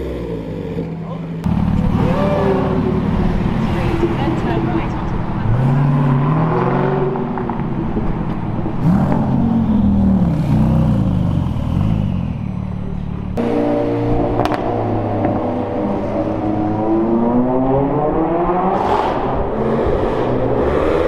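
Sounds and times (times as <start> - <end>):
car engine rolling slowly: 0.0 - 6.2, 7.0 - 16.4
sports car engines revving: 0.0 - 21.0.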